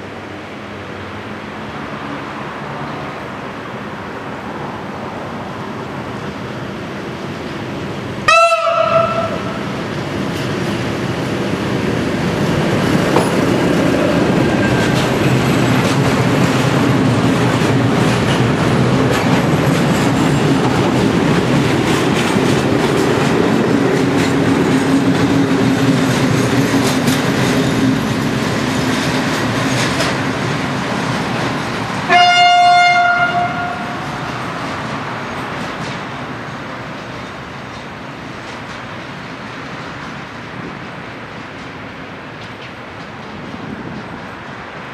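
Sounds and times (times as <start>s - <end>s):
locomotive engine rumbling: 5.7s - 42.2s
locomotive horn blast: 8.3s - 9.7s, 32.1s - 34.2s
wheels clicking over rail joints: 9.9s - 32.3s.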